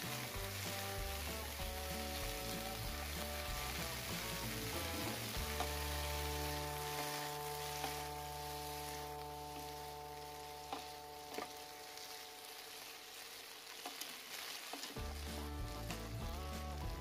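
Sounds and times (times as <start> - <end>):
utensils clicking against pan: 0.0 - 9.8, 13.7 - 16.1
vegetables sizzling in a pan: 0.0 - 17.0.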